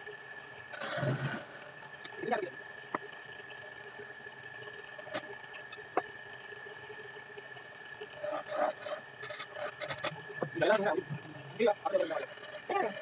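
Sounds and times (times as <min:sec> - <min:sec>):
turning tool scraping wood: 0:08.2 - 0:10.2.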